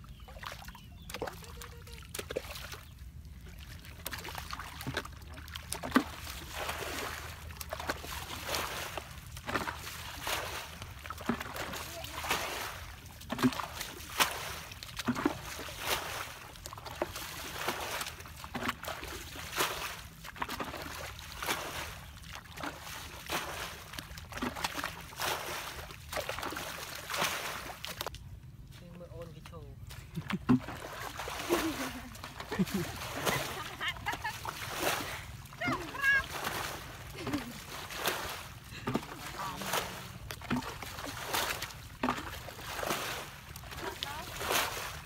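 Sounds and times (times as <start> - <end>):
water sloshing and splashing: 0.0 - 28.8, 29.8 - 45.0
hoe chopping wet mud: 3.9 - 28.1, 30.1 - 33.8, 34.4 - 45.0.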